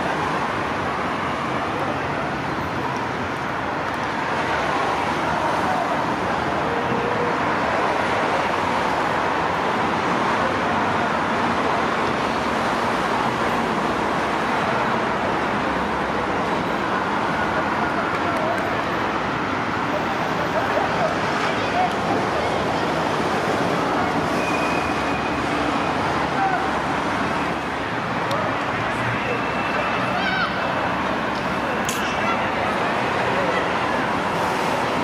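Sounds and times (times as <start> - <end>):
distant road traffic: 0.0 - 35.0
faint voices: 17.0 - 24.6, 25.6 - 35.0.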